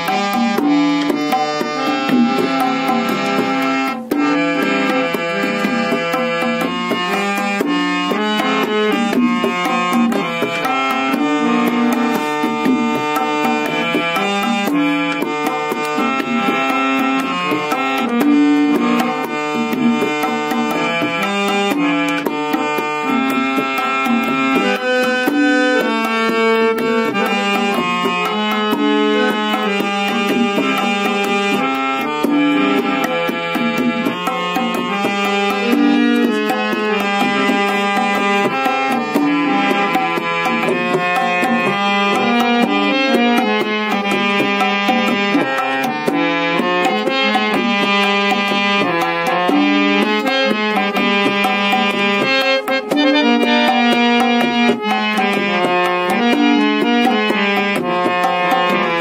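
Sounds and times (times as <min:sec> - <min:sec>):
harmonium melody: 0:00.0 - 0:59.0
tabla strokes: 0:00.0 - 0:59.0.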